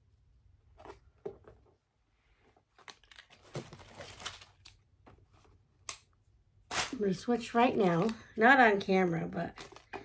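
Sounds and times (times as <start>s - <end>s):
crinkly material rustling: 2.4s - 5.7s, 6.7s - 8.6s.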